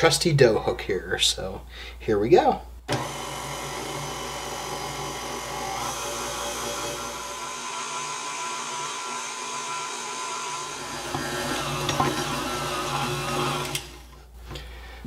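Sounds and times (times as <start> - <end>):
stand mixer motor whining: 2.9 - 14.2.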